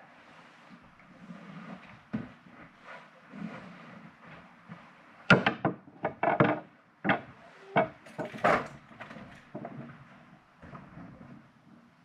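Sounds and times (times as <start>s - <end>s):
sharp knocks and clatters: 5.3s - 9.8s.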